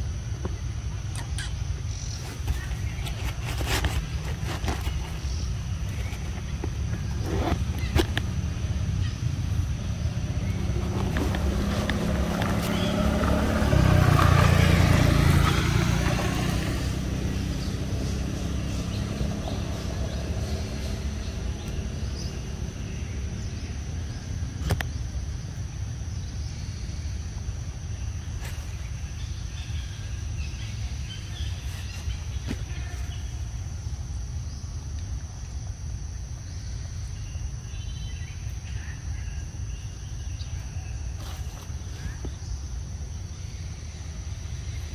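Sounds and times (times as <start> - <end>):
high insect drone: 0.0 - 44.9
low outdoor rumble: 0.0 - 44.9.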